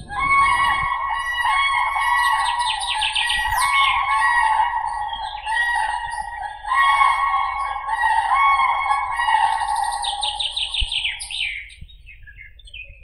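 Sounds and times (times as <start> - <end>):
cranes trumpeting: 0.0 - 11.2.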